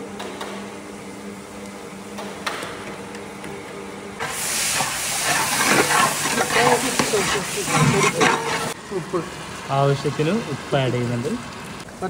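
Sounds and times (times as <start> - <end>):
food sizzling in oil: 4.2 - 12.0
ladle stirring sizzling mixture: 4.2 - 12.0.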